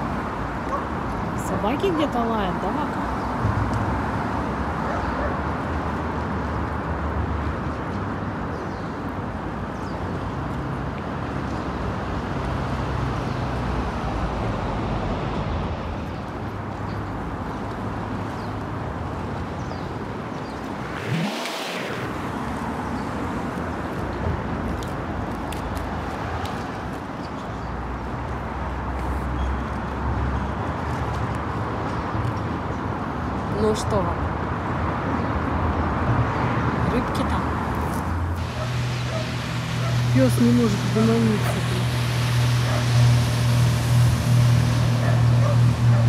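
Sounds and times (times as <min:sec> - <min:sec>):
road traffic hum: 0:00.0 - 0:46.0
brief whoosh: 0:20.4 - 0:22.9.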